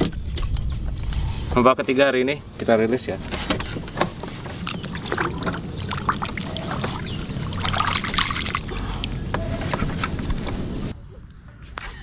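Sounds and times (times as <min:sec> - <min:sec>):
water splashing and trickling: 0:02.6 - 0:10.9.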